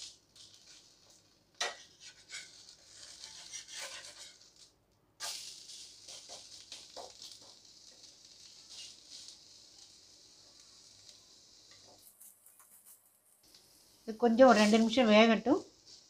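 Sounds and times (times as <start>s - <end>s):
batter sizzling on hot pan: 0.0s - 16.0s
metal spatula scraping pan: 1.6s - 4.6s.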